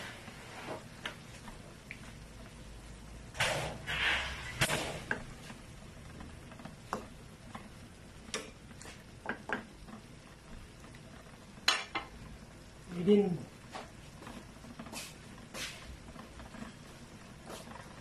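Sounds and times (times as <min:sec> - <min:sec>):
metal spatula scraping frying pan: 0:03.4 - 0:05.2.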